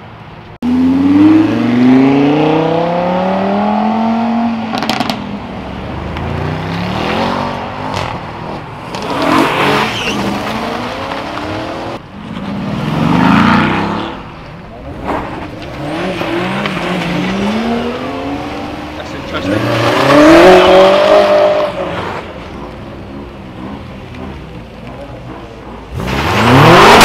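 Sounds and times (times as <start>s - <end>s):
car pulling away: 0.6s - 27.0s
car engine revving past: 14.9s - 22.7s
sports car engine revving: 15.3s - 27.0s.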